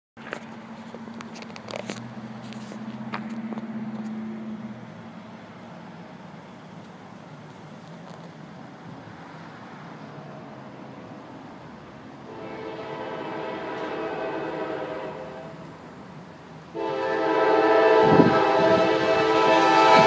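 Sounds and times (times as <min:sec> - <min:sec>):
low engine hum: 0:00.2 - 0:14.5
train wheels rushing on rail: 0:00.2 - 0:20.0.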